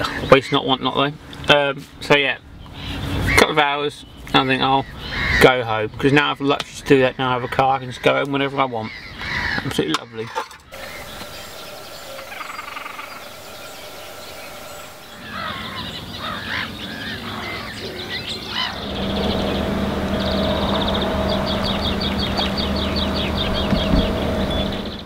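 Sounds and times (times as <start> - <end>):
wild birds chirping: 2.3 - 25.0
low hum and rumble: 10.8 - 15.8, 18.6 - 25.0
bird rapid trill: 10.8 - 25.0.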